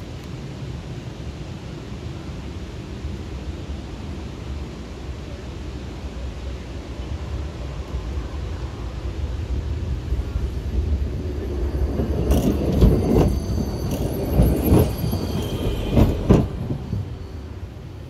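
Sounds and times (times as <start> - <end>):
tram rumbling past: 0.0 - 18.0
faint high wheel squeal: 11.0 - 18.0
wheels clacking over track joints: 11.1 - 17.3.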